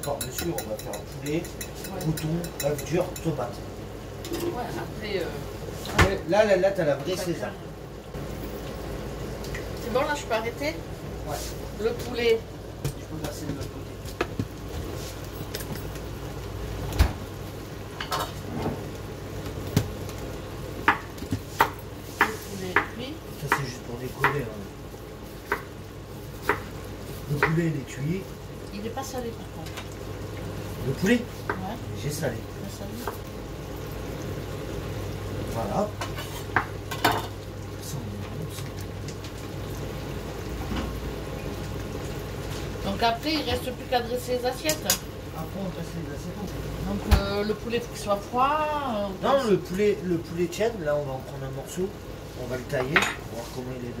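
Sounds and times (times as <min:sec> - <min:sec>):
kitchen utensils knocking and clinking: 0:00.0 - 0:03.4.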